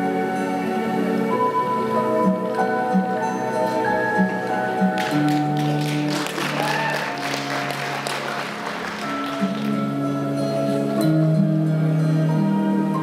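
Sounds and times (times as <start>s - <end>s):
soft ambient music: 0.0s - 13.0s
audience applause: 5.0s - 10.0s.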